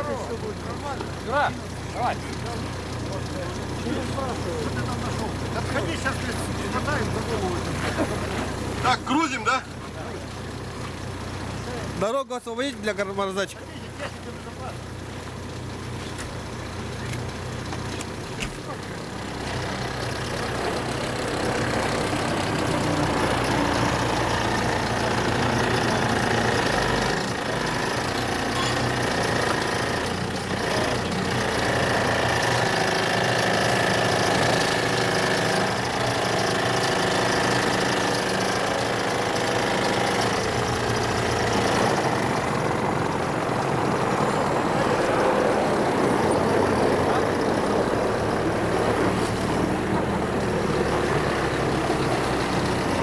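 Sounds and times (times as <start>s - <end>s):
loader engine running: 0.0s - 53.0s.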